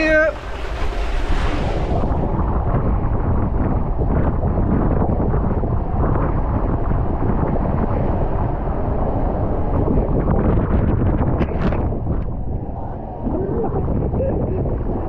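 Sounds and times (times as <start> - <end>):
water rushing down water slide: 0.0 - 3.0
wind buffeting microphone: 0.0 - 15.0.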